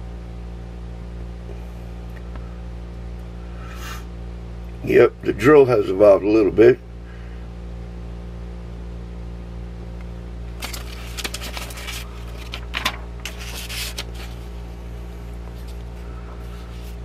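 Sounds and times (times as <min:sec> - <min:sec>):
steady low hum: 0:00.0 - 0:17.0
paper pages rustling: 0:10.6 - 0:14.6, 0:15.5 - 0:17.0.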